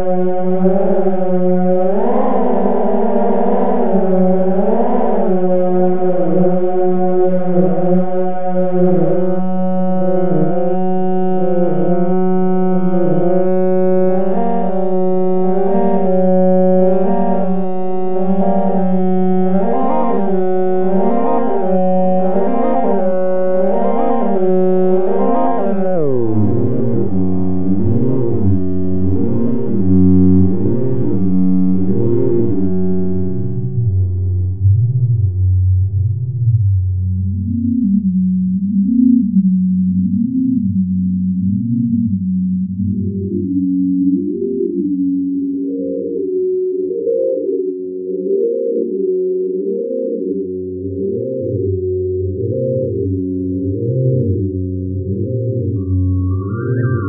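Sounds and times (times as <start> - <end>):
wobbling synthesizer drone chord: 0.0 - 44.8.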